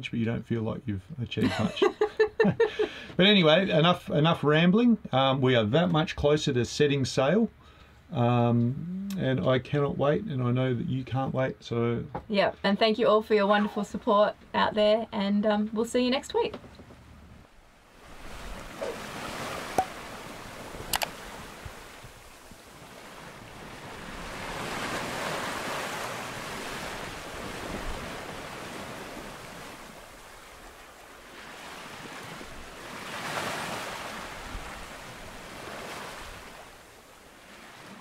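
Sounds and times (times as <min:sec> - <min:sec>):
wind: 0:00.0 - 0:38.0
sea splashing past hull: 0:17.8 - 0:38.0
sharp clicks: 0:20.9 - 0:21.2.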